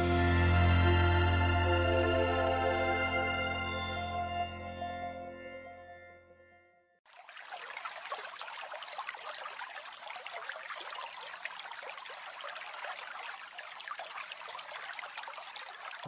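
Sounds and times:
water splashing and trickling: 7.0s - 16.0s.

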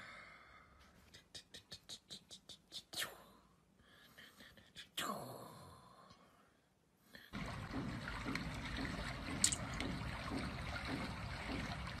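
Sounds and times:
trickling water: 7.3s - 12.0s.

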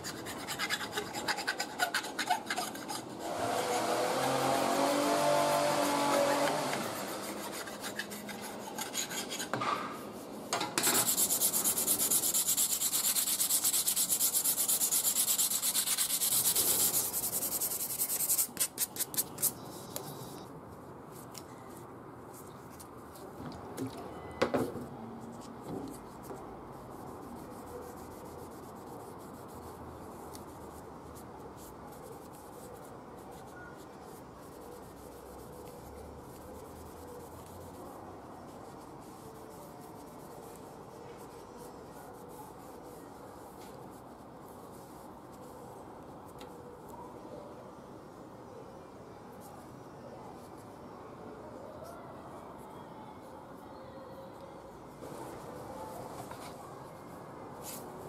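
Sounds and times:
wooden handle being rasped: 0.0s - 9.6s, 10.8s - 18.7s
cloth rag rubbing wood: 0.0s - 19.2s.

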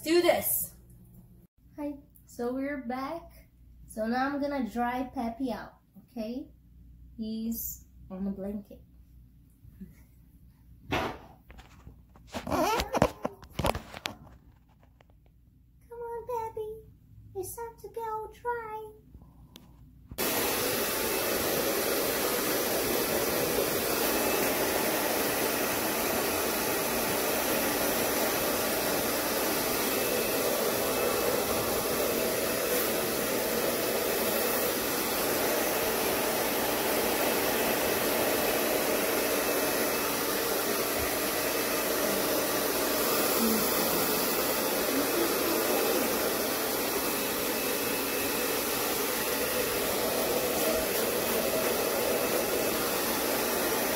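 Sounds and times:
hair dryer blowing: 20.2s - 53.9s.

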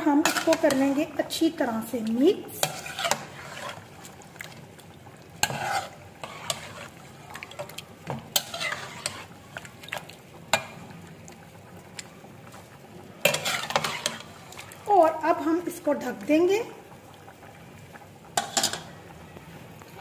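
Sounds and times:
metal spatula scraping pot: 0.0s - 4.2s, 5.3s - 9.9s, 13.2s - 14.9s, 18.4s - 18.9s
oil sizzling: 0.0s - 20.0s.

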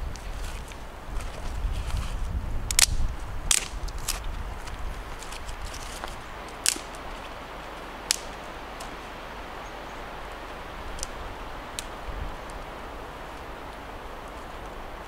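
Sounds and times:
steady background hiss: 0.0s - 15.0s
wooden sticks clicking and knocking: 2.6s - 7.3s, 8.0s - 8.9s.

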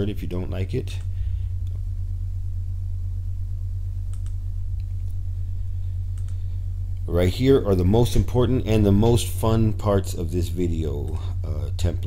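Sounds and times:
steady low hum: 0.0s - 12.0s
computer mouse clicks: 4.1s - 5.2s, 6.1s - 6.4s.

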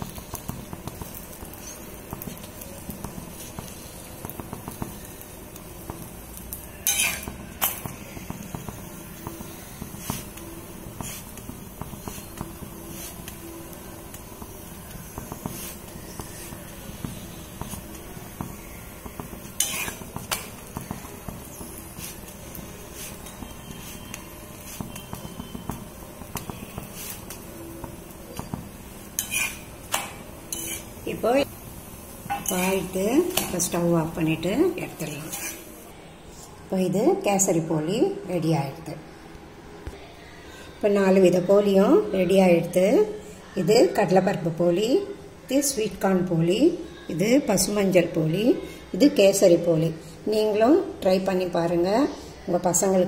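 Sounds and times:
spatula scraping on griddle: 0.0s - 5.2s, 5.8s - 31.5s, 32.2s - 33.9s, 34.7s - 35.8s
flatbread crackling on griddle: 0.0s - 35.9s.

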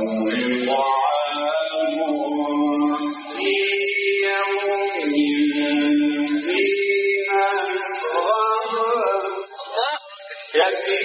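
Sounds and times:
man chanting melodically: 0.0s - 11.0s.

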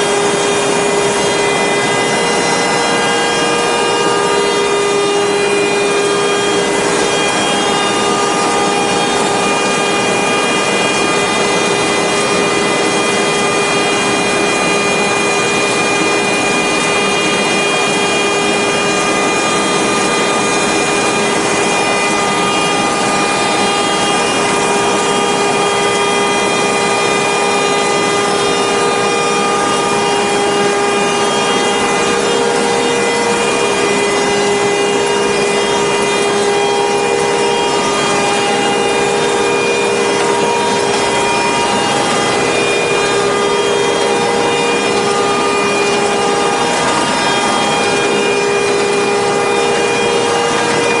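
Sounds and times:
machine rollers and cutters rushing: 0.0s - 51.0s
machine whines: 0.0s - 51.0s.

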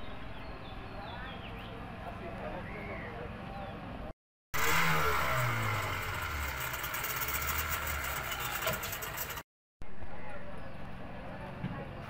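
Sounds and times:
boat engine running: 4.6s - 9.4s.

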